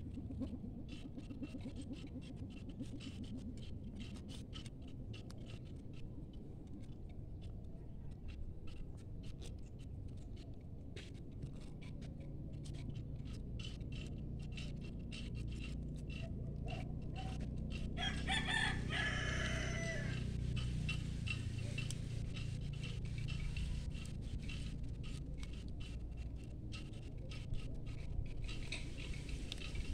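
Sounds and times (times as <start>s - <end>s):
steady low hum: 0.0s - 29.9s
rooster crowing: 18.0s - 20.4s.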